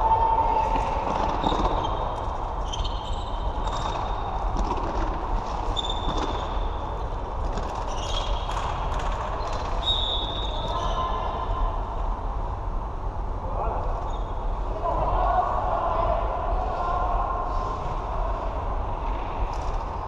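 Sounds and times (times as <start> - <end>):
shoes squeaking on floor: 1.4 - 4.2, 5.6 - 6.7, 7.8 - 8.6.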